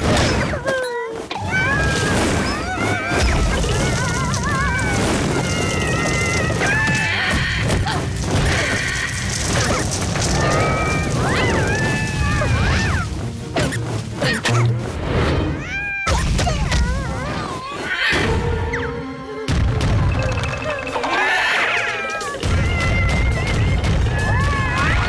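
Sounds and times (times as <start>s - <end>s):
lively cartoon music: 1.2s - 25.0s
gliding squeaky tones: 20.2s - 22.5s.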